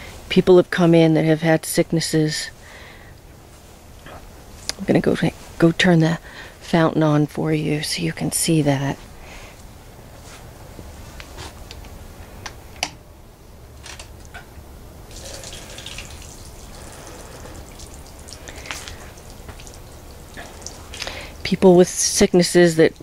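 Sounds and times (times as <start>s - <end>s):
fountain water trickling: 15.1s - 21.6s.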